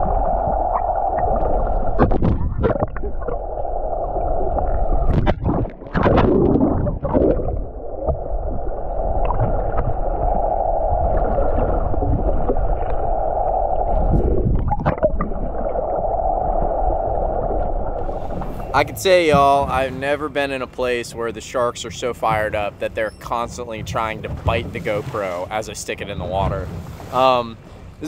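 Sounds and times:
low rumble: 0:00.0 - 0:27.0
muffled underwater water rush: 0:00.0 - 0:28.0
sharp knocks and splashes: 0:01.8 - 0:03.4, 0:05.0 - 0:08.3, 0:18.0 - 0:20.1.

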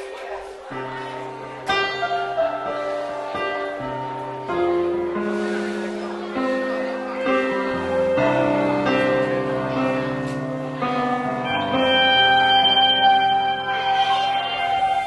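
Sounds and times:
keyboard chords: 0:00.0 - 0:15.0
guitar chords: 0:06.8 - 0:15.0.

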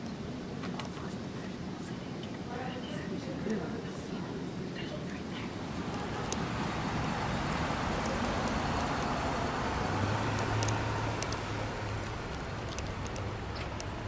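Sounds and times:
traffic rumble: 0:00.0 - 0:14.0
car engine humming: 0:04.6 - 0:14.0.

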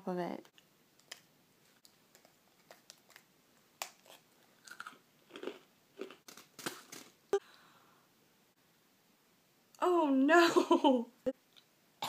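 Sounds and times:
cookie crunching and chewing: 0:01.8 - 0:07.1.

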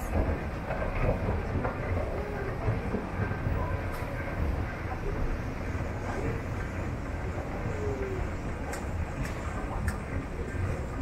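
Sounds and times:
faint irregular clicks: 0:08.0 - 0:10.7.

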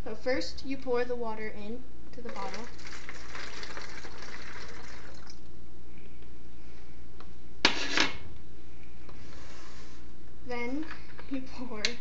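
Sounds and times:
water trickling through funnel: 0:02.2 - 0:05.5.

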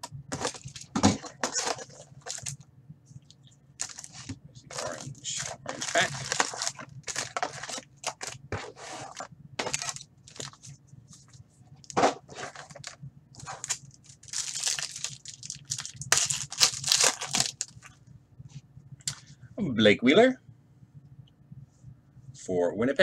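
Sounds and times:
foil wrappers crinkling: 0:00.3 - 0:02.6, 0:03.8 - 0:10.7, 0:11.8 - 0:18.0
foil pack tearing open: 0:00.4 - 0:02.6, 0:03.8 - 0:08.4, 0:09.0 - 0:10.6, 0:12.4 - 0:17.9.

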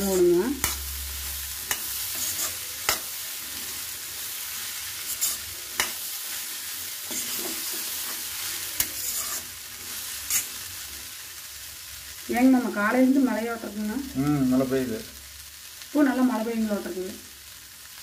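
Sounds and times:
metal spatula scraping a pan: 0:00.0 - 0:11.1
frying sizzle: 0:00.0 - 0:18.0.

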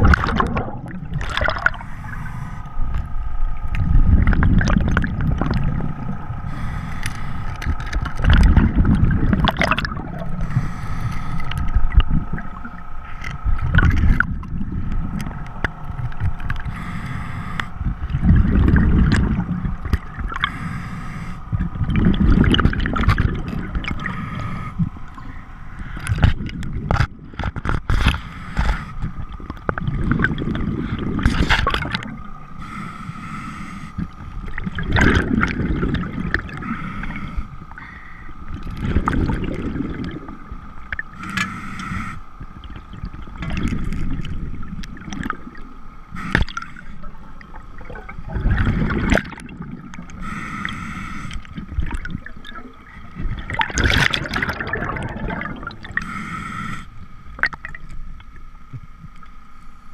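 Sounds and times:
exhaled bubbles rumbling: 0:00.0 - 0:32.6, 0:34.0 - 0:41.2, 0:41.8 - 0:56.1, 0:56.9 - 0:59.2
regulator hiss on inhale: 0:01.7 - 0:03.0, 0:06.4 - 0:07.7, 0:10.3 - 0:11.6, 0:16.6 - 0:18.0, 0:20.4 - 0:21.7, 0:23.9 - 0:26.3, 0:28.1 - 0:29.1, 0:32.5 - 0:34.4, 0:36.5 - 0:38.6, 0:41.1 - 0:42.5, 0:46.1 - 0:47.2, 0:50.1 - 0:51.8, 0:55.8 - 0:57.3.

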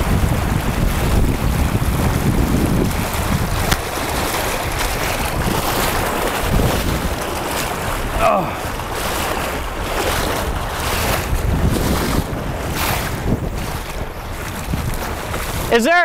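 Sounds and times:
wind buffeting microphone: 0:00.0 - 0:16.0
river rapids rushing: 0:02.3 - 0:11.4, 0:12.7 - 0:16.0.

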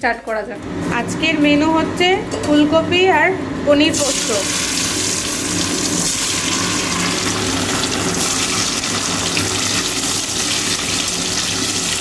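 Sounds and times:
food sizzling in hot oil: 0:03.9 - 0:12.0.

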